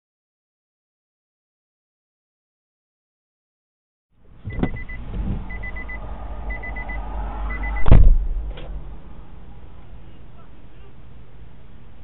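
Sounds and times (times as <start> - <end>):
low vehicle rumble: 4.2 - 12.0
loud thump: 4.3 - 9.4
high electronic beeps: 4.5 - 7.9.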